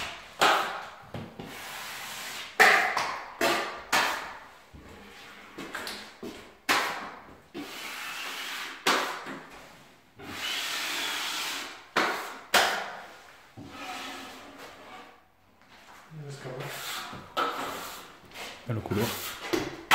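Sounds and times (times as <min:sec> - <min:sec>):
taping knife scraping plasterboard: 0:06.7 - 0:13.0, 0:13.6 - 0:15.2, 0:16.5 - 0:19.7.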